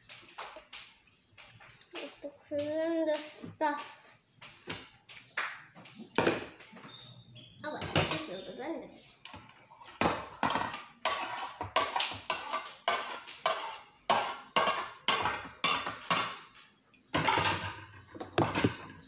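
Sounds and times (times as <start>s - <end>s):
dishes and cutlery clattering: 10.0s - 19.0s.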